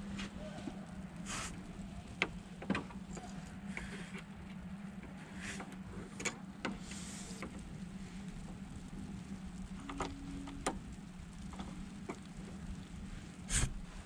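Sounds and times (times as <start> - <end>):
steady low hum: 0.0 - 14.0
brief hiss: 1.2 - 1.6, 13.5 - 13.9.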